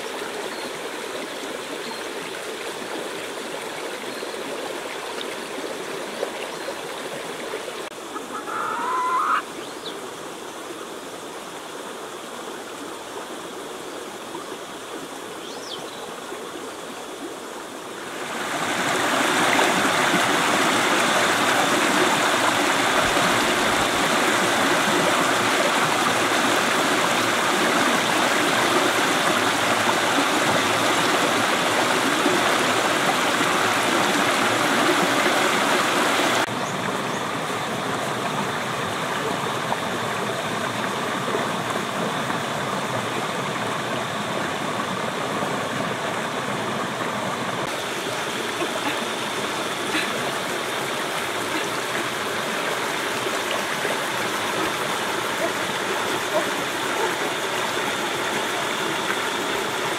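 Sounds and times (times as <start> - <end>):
river water running: 0.0 - 59.9
chicken squawking: 8.1 - 9.5.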